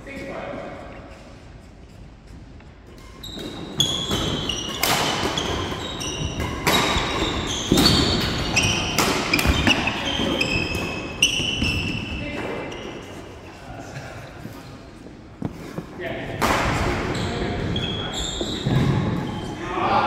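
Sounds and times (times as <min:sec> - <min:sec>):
footsteps: 0:00.1 - 0:04.6, 0:09.4 - 0:19.3
shoes squeaking on wooden floor: 0:00.9 - 0:13.6, 0:14.4 - 0:16.0, 0:17.0 - 0:19.6
racket hitting shuttlecock: 0:03.0 - 0:11.9.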